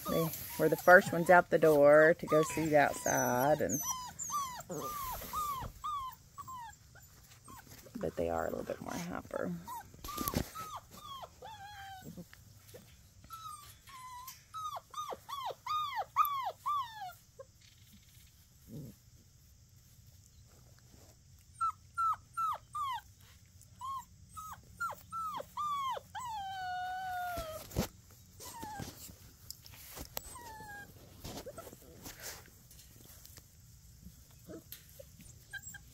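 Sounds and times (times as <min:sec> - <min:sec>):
puppies whining: 0:00.0 - 0:18.0, 0:21.4 - 0:29.2, 0:29.9 - 0:32.4, 0:34.3 - 0:35.9.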